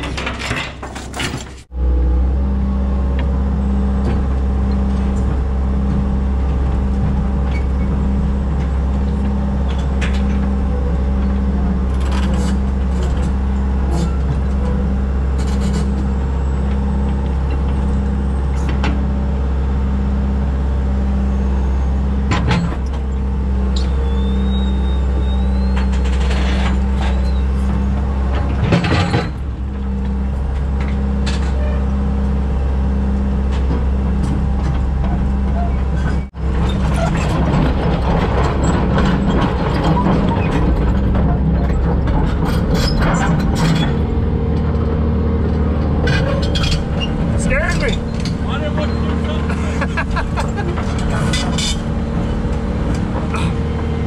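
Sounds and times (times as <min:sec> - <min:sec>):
excavator diesel engine running: 0:00.0 - 0:54.0
low pulsing hum: 0:01.7 - 0:54.0.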